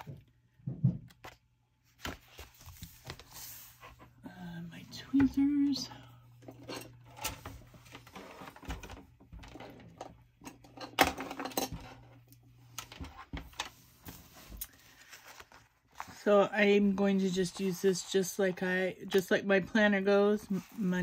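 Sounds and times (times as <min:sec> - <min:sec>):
paper rustling: 0:01.2 - 0:04.0, 0:13.7 - 0:16.3.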